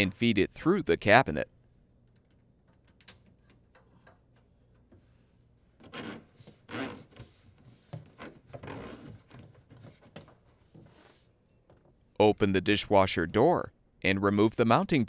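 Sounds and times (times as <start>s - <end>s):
plastic hose scraping against wood: 5.8s - 11.3s.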